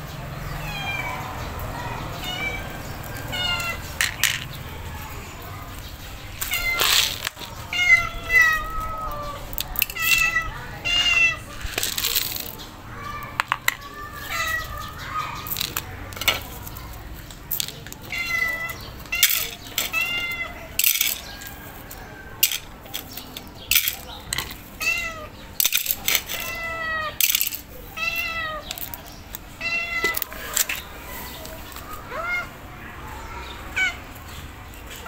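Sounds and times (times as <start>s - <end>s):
cat meowing: 0.6s - 1.3s, 2.2s - 3.9s, 7.7s - 11.5s, 18.1s - 20.6s, 26.3s - 27.2s, 29.6s - 30.3s, 32.1s - 32.6s.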